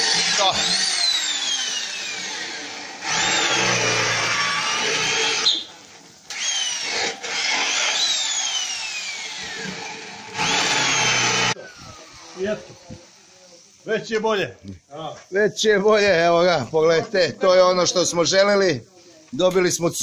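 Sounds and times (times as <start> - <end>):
electric drill drilling into steel: 0.0 - 12.6.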